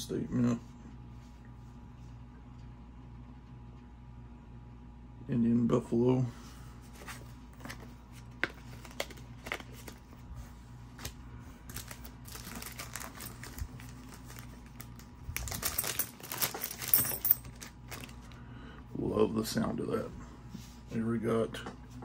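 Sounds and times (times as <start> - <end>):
plastic sleeve clicks and crinkles: 8.3 - 10.0, 11.0 - 16.9.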